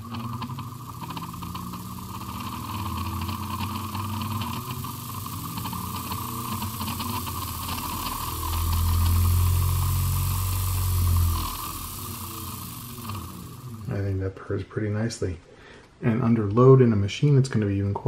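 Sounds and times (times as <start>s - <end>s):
sewing machine motor purring: 0.0s - 14.2s.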